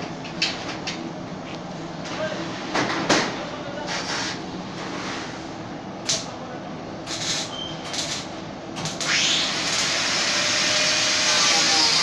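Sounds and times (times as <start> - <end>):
welding arc hissing: 7.0 - 12.0.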